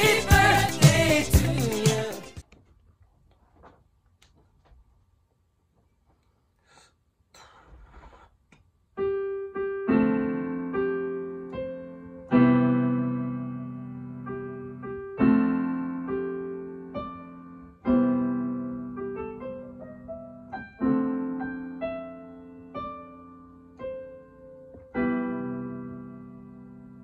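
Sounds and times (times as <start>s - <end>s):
piano chords: 0.0s - 2.4s, 9.0s - 27.0s.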